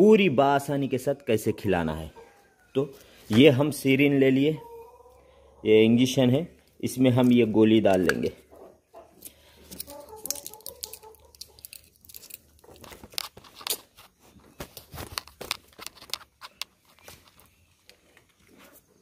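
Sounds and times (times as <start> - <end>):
foil blister strip crinkling: 9.8 - 14.0.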